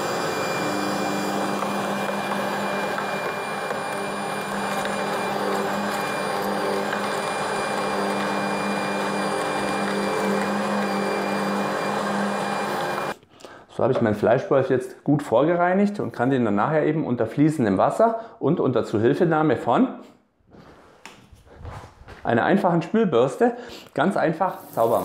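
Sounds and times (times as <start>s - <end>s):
meat grinder motor whining: 0.0s - 13.2s.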